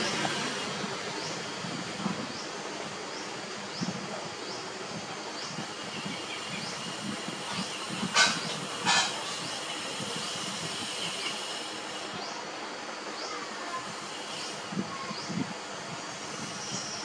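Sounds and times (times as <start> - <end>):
steady hiss: 0.0 - 17.0.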